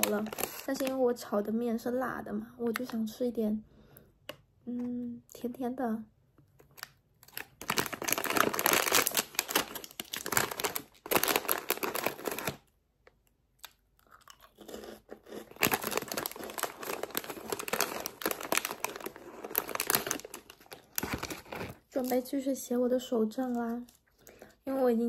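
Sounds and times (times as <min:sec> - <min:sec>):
foil wrapper crinkling: 0:00.0 - 0:01.2, 0:06.6 - 0:12.7, 0:15.3 - 0:22.3.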